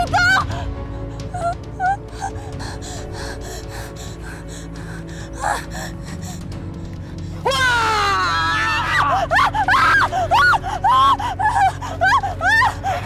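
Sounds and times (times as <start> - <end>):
woman screaming: 0.0 - 0.6, 7.4 - 13.0
woman wailing in panic: 0.0 - 0.6, 7.4 - 13.0.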